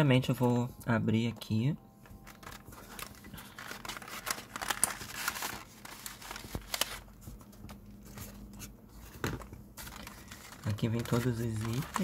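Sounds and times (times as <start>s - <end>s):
plastic and cardboard crinkling: 2.0s - 12.0s
sharp plastic crackles: 2.2s - 7.2s, 9.3s - 12.0s.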